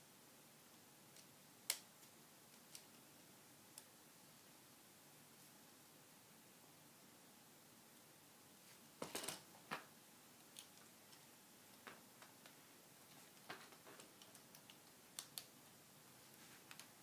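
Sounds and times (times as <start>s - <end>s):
small plastic clicks and taps: 13.4s - 15.5s.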